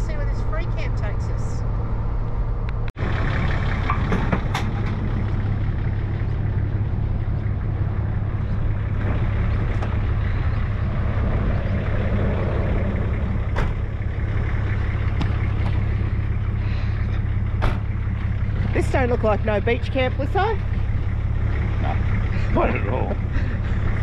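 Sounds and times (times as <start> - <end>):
vehicle engine idling: 0.0 - 24.0.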